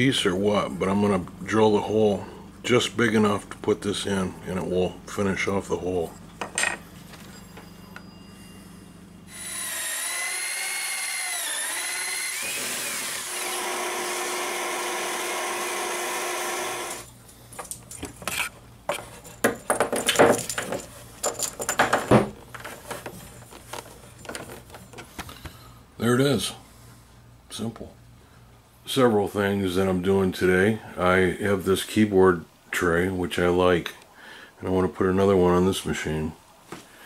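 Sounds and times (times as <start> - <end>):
power drill boring: 9.3 - 17.1.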